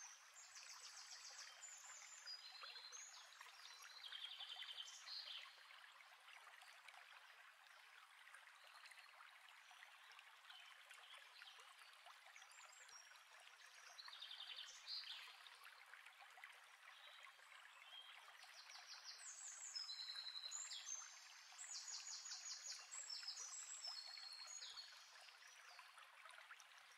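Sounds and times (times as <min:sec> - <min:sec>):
stream running: 0:00.0 - 0:26.9.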